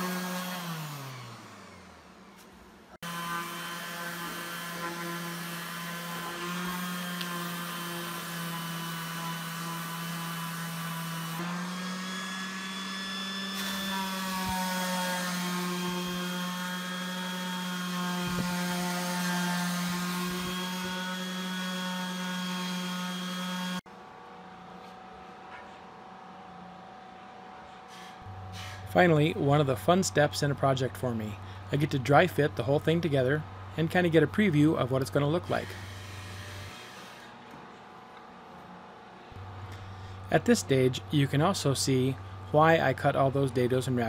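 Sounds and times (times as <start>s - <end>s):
orbit sander on wood: 0.0s - 2.4s, 3.0s - 23.8s, 35.2s - 37.4s.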